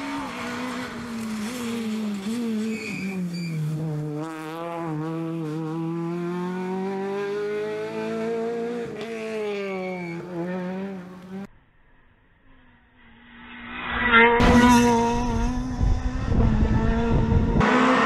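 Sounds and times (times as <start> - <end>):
rally car engine revving: 0.0 - 11.5, 13.4 - 18.0.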